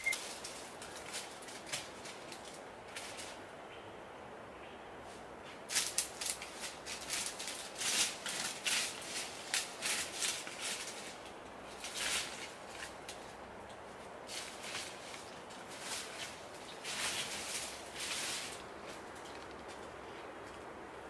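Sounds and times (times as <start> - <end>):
brushing against undergrowth: 0.0 - 3.4, 5.1 - 20.8
footsteps crunching dry leaves: 5.7 - 13.4, 14.2 - 20.2.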